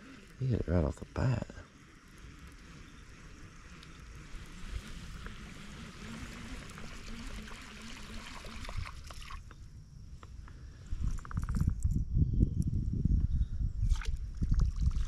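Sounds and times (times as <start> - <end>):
water trickling and splashing: 3.6 - 9.5.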